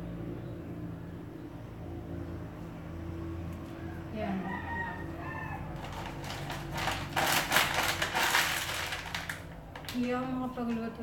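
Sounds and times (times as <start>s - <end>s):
rooster crowing: 3.7s - 6.3s
rustling and clattering on counter: 5.7s - 10.9s.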